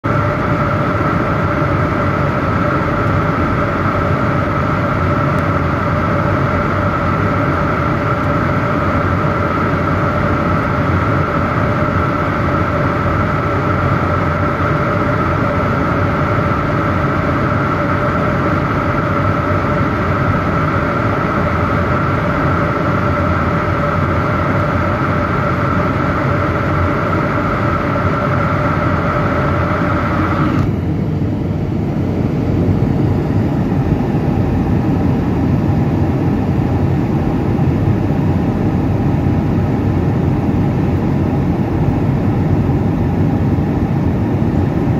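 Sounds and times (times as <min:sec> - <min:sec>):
jet engine and airflow rush: 0:00.0 - 0:44.9
steady two-tone hum: 0:00.0 - 0:44.9.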